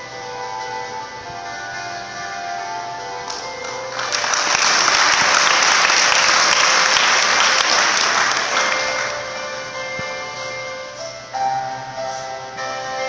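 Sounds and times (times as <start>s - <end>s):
background music: 0.0s - 13.0s
audience clapping: 3.3s - 9.5s.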